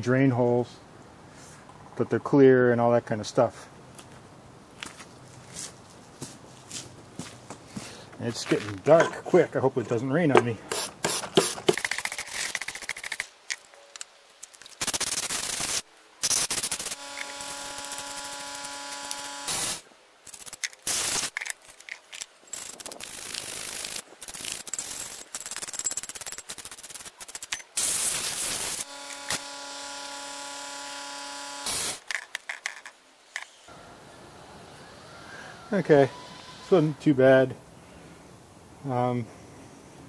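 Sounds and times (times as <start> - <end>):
compressed air blasts hissing: 10.6 - 13.0, 14.8 - 21.4, 27.8 - 29.6, 31.5 - 32.1.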